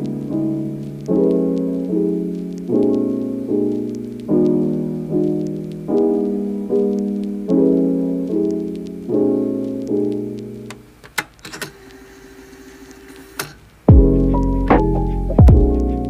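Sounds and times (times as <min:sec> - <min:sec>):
soft piano chords: 0:00.0 - 0:10.8, 0:13.9 - 0:16.0
sharp clicks: 0:09.8 - 0:12.0.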